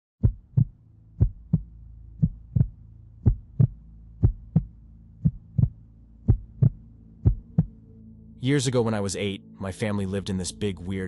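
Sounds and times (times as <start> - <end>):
heartbeat thumps: 0.2 - 7.8
low steady hum: 0.2 - 11.0.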